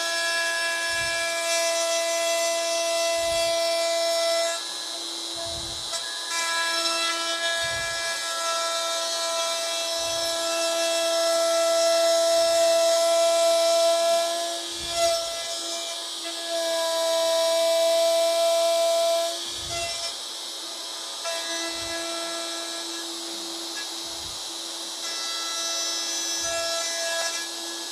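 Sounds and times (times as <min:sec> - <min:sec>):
router cutting wood: 0:00.0 - 0:27.9
dull low thump: 0:05.4 - 0:05.9.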